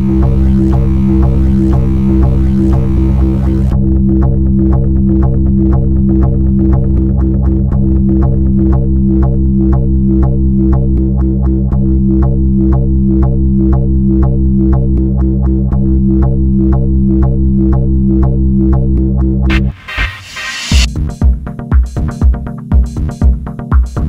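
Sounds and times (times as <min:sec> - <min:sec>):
electronic synthesizer music: 0:00.0 - 0:03.9, 0:19.5 - 0:20.9.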